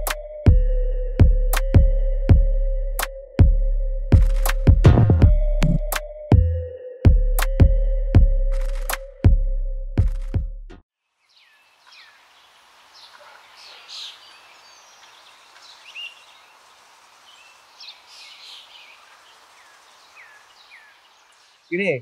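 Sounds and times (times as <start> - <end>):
electronic music bass hit: 0.0 - 10.6
background hiss: 11.1 - 22.0
birds chirping: 11.2 - 22.0.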